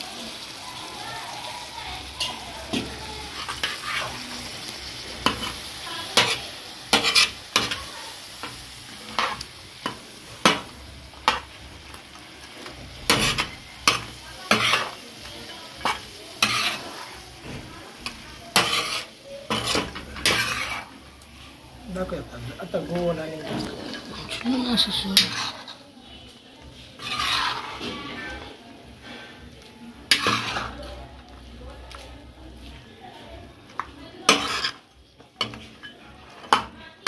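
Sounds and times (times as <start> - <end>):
meat sizzling in oil: 0.0 - 37.0
metal spatula scraping a griddle: 2.2 - 11.5, 12.6 - 22.1, 23.5 - 31.0, 34.2 - 36.8.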